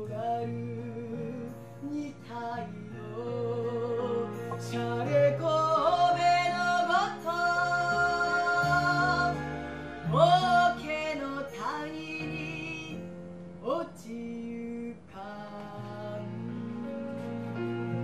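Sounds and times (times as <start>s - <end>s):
woman singing: 0.0s - 13.0s
instrumental accompaniment: 0.0s - 18.0s.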